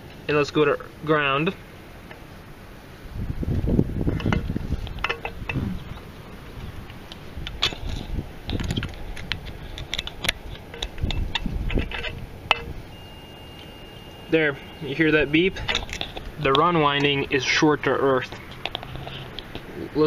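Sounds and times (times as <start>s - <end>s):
low handling bumps: 3.2s - 13.0s.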